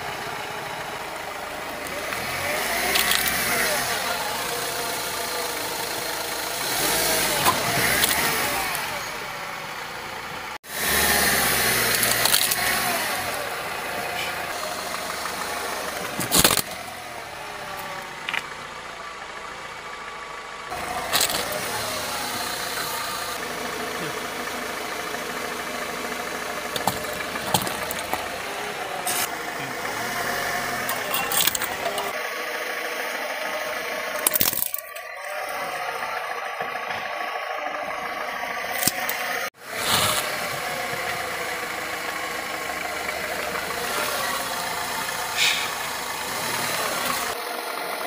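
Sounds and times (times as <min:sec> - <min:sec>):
car engine running slowly: 0:00.0 - 0:48.0
tyre crushing objects cracking: 0:15.9 - 0:17.0, 0:20.8 - 0:21.8, 0:26.6 - 0:29.4, 0:34.2 - 0:35.2, 0:39.8 - 0:41.2.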